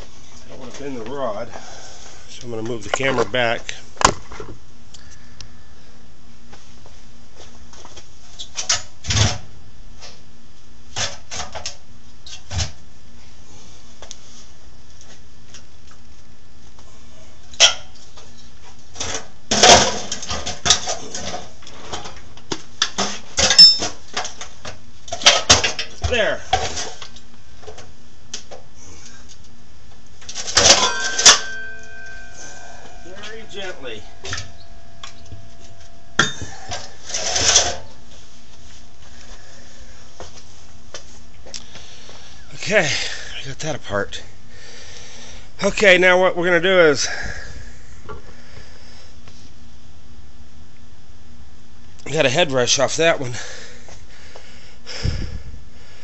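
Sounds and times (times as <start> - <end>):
metal clanks and knocks: 30.5 - 37.8
lingering metallic ring: 30.6 - 37.7.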